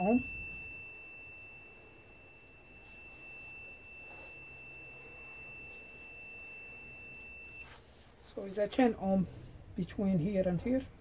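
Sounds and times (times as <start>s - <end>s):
multimeter continuity beep tone: 0.0s - 8.0s.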